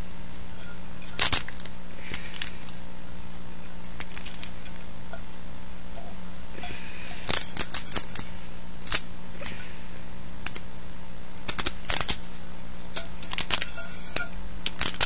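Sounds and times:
baseball bat handling clicks: 12.9s - 15.0s.

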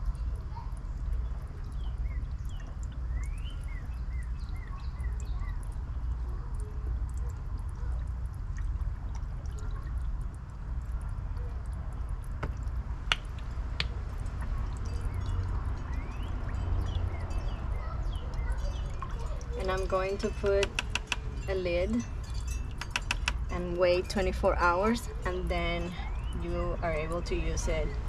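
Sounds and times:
water bubbling and dripping: 0.0s - 28.0s
sharp clicks: 20.6s - 21.2s, 22.8s - 23.4s.

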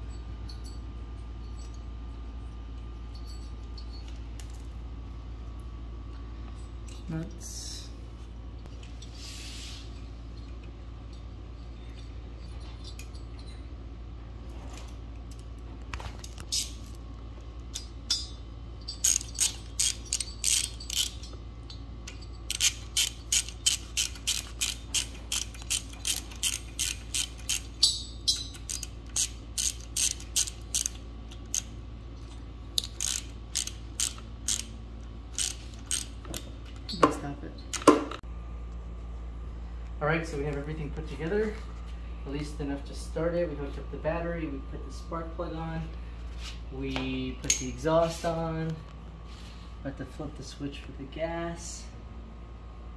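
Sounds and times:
ratchet wrench clicking: 17.7s - 21.4s, 22.1s - 31.8s, 32.8s - 36.5s.

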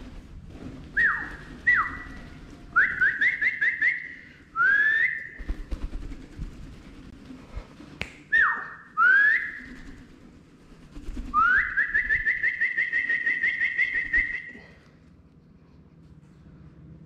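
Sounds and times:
person whistling: 2.8s - 5.4s, 11.4s - 14.6s.

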